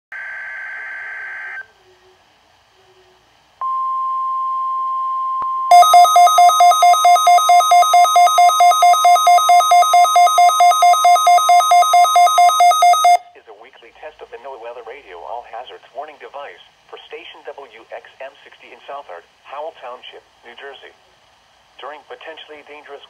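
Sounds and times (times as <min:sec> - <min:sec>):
steady alarm tone: 0:03.6 - 0:13.3.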